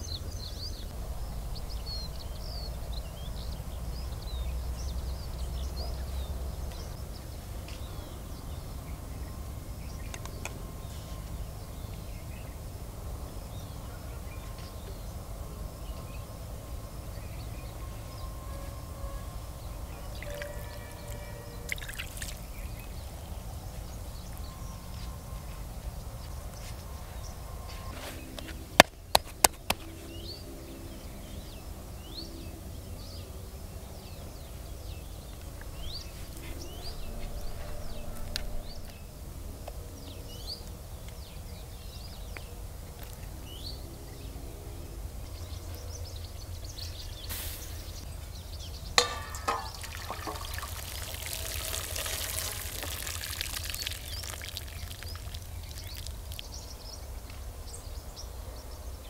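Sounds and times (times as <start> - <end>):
water trickling through metal colander: 20.2 - 23.0, 49.0 - 56.6
small birds chirping: 45.2 - 59.0.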